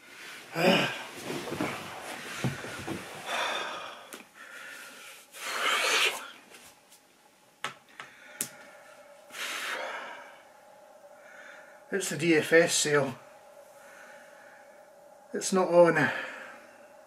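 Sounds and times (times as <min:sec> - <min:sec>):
man breathing out heavily: 0:02.3 - 0:06.2, 0:08.1 - 0:11.9.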